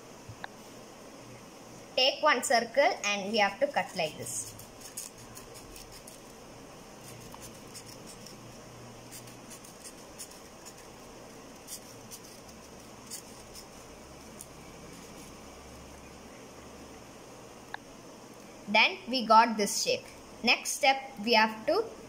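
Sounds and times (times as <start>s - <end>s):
scissors snipping paper: 4.0s - 6.3s, 11.6s - 15.1s.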